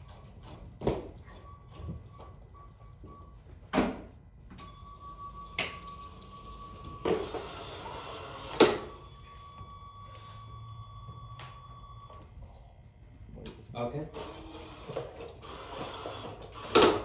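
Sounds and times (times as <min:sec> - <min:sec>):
electric motor whine: 0:05.8 - 0:10.7, 0:14.2 - 0:17.0.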